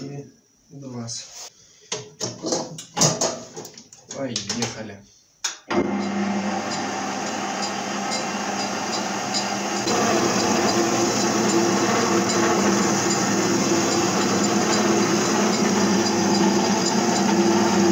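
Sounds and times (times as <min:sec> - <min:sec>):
lathe spindle running: 0:05.7 - 0:17.9.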